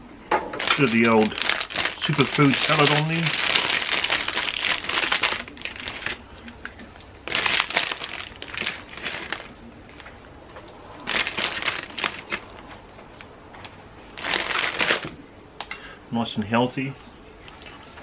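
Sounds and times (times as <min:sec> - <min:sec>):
plastic bag crinkling: 0:00.5 - 0:12.9, 0:13.6 - 0:15.1.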